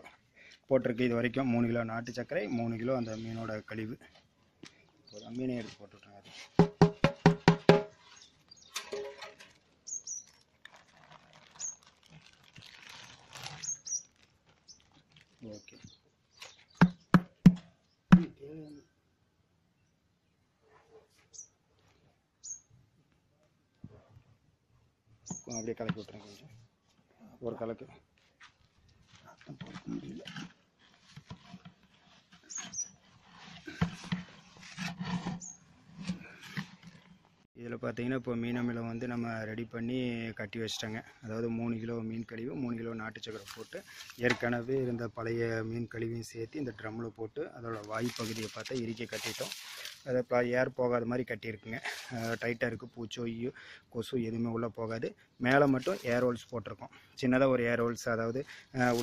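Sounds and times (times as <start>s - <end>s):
sharp knock: 6.6s - 7.9s, 16.8s - 18.4s
bird chirping: 7.0s - 10.4s, 13.5s - 14.9s, 15.5s - 19.0s, 22.4s - 22.8s, 25.2s - 25.8s, 32.4s - 33.0s
plastic bag rustling: 7.9s - 16.7s, 47.7s - 50.1s.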